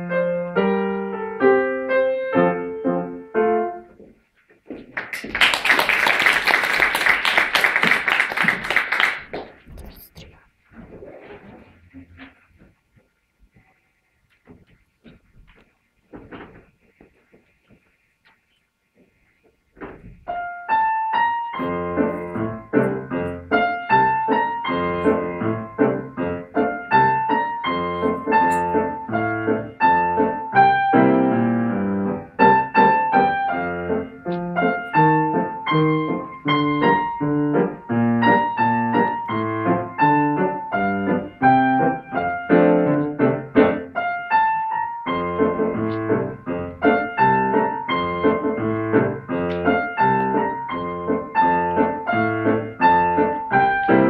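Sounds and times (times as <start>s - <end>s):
grand piano playing: 0.0s - 4.0s, 20.3s - 54.0s.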